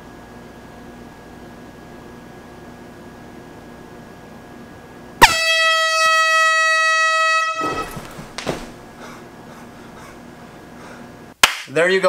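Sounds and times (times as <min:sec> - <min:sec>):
air horn blast: 0:05.2 - 0:08.4
rustling: 0:07.6 - 0:09.0.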